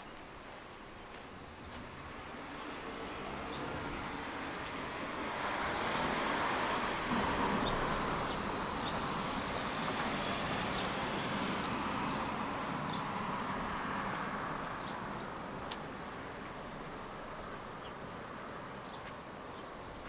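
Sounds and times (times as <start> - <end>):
road traffic: 0.0 - 20.0.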